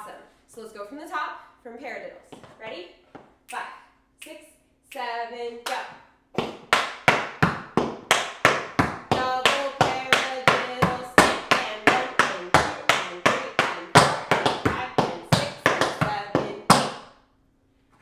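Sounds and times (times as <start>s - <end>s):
tap shoes on wooden floor: 2.3s - 3.3s, 6.4s - 17.0s.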